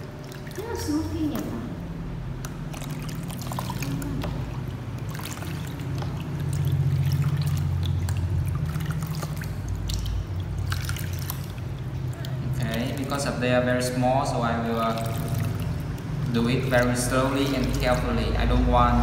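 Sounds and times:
low steady hum: 0.0s - 19.0s
water trickling and splashing: 0.0s - 19.0s.

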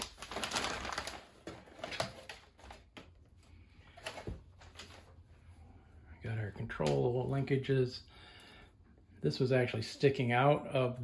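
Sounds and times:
plastic rustling: 0.0s - 5.2s.

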